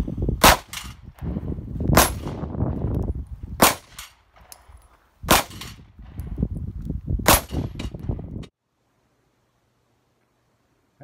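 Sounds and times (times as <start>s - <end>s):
wind on microphone: 0.0s - 8.5s
pistol shots: 0.4s - 0.9s, 1.9s - 2.4s, 3.6s - 4.6s, 5.3s - 5.8s, 7.2s - 7.8s.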